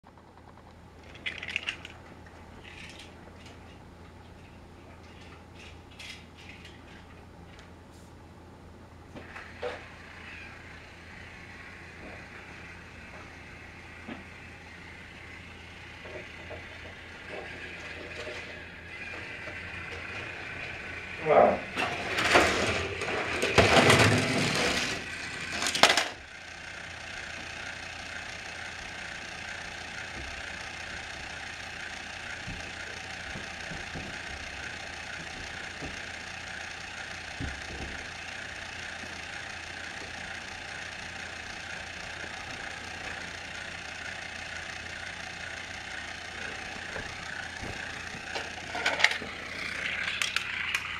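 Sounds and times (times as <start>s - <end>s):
clicks of toy being handled: 0.6s - 2.0s, 49.9s - 50.9s
plastic clattering and rattling: 1.0s - 3.8s, 21.8s - 26.2s, 47.0s - 50.9s
toy train motor whirring: 2.6s - 3.6s, 9.2s - 50.9s.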